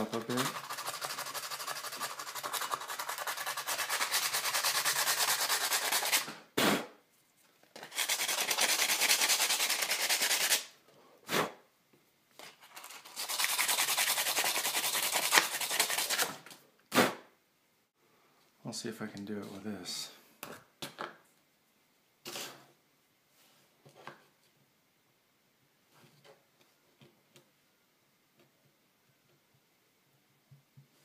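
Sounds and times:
sandpaper scratching metal: 0.0 - 6.3, 7.8 - 10.7, 12.7 - 16.4.

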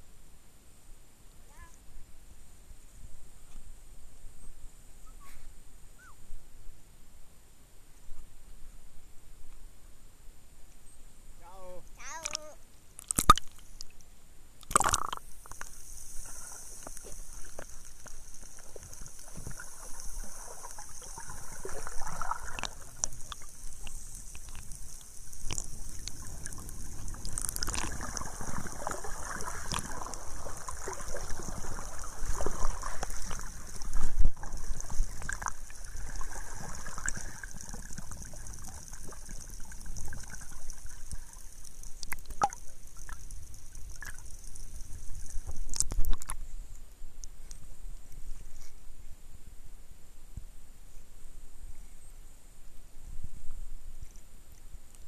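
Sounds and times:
water splashing at the surface: 14.6 - 46.4
muffled underwater sloshing: 16.2 - 46.4.

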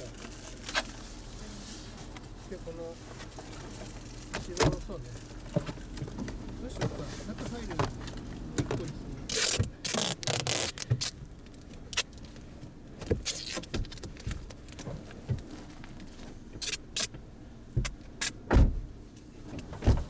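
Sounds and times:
rustling and scraping: 0.0 - 17.2
knocks inside car: 17.7 - 18.9.

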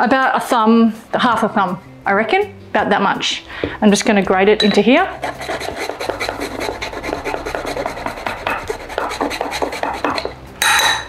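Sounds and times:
ginger scraping on metal grater: 5.1 - 10.4.

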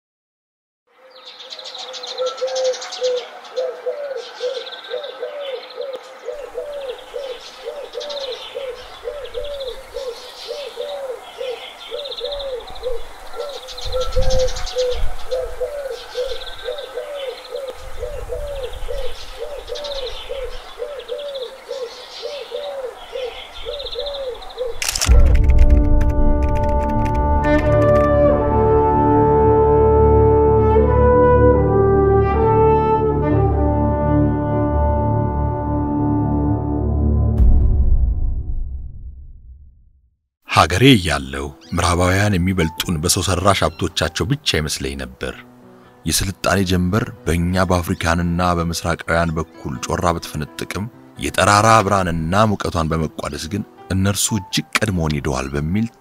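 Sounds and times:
bird chirps: 1.0 - 25.2
bird cooing: 1.5 - 24.8
low rumbles: 24.8 - 29.4, 37.2 - 40.1
loud brass music: 25.1 - 37.4.

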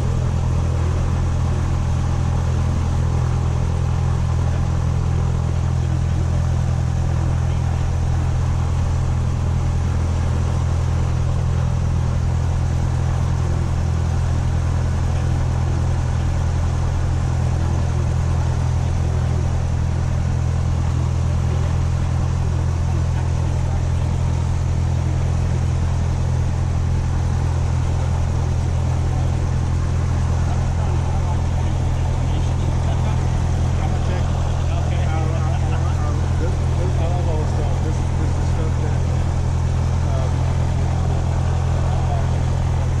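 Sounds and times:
propeller aircraft engine drone: 0.0 - 43.0.

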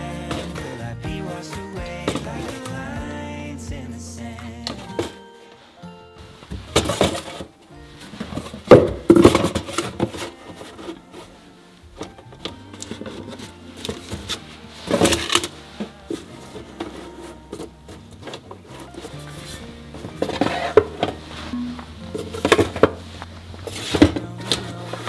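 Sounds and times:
soft background music: 0.0 - 25.0
paper cartons knocking and sliding: 6.5 - 11.4, 12.0 - 25.0.

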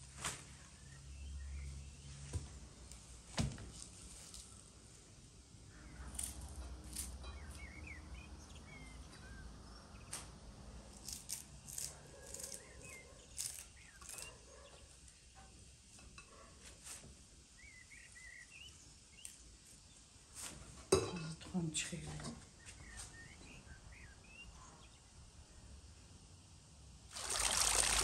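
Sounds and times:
small birds chirping: 7.2 - 10.4, 11.8 - 15.3, 17.5 - 20.2, 22.4 - 25.1.

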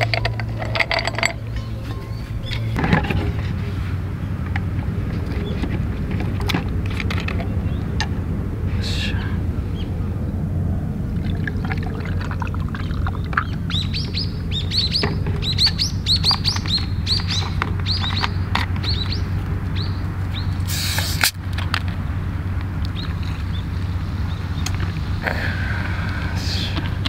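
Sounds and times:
birds chirping: 0.0 - 27.0
steady low hum: 0.0 - 27.0
short hiss: 20.7 - 21.4.

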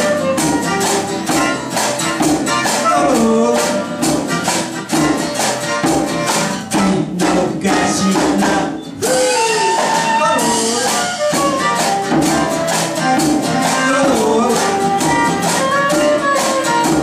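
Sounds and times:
strummed acoustic guitar: 0.0 - 17.0
soprano saxophone melody: 9.0 - 17.0.

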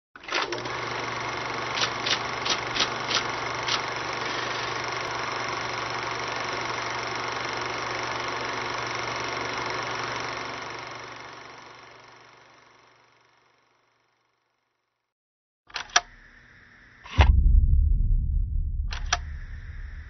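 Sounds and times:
sharp clicks: 18.8 - 20.0.

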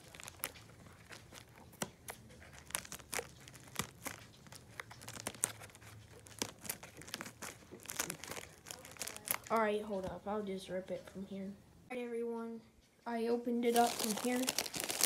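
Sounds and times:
scissors snipping plastic: 0.0 - 9.6, 13.7 - 15.0
plastic crinkling: 0.0 - 10.2, 13.6 - 15.0.

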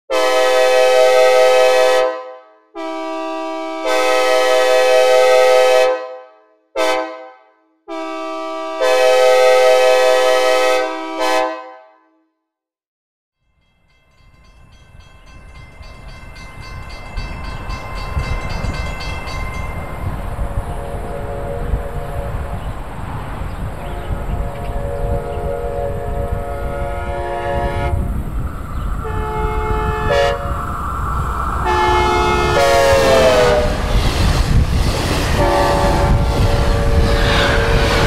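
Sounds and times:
train horn blasts: 0.1 - 12.2, 20.4 - 22.6, 23.8 - 28.1, 29.0 - 30.6, 31.6 - 33.9, 35.3 - 38.0
low train rumble: 13.6 - 38.0.

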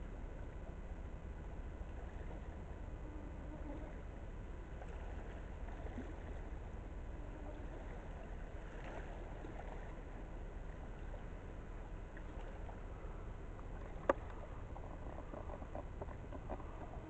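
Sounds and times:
distant ship engines rumbling: 0.0 - 17.0.

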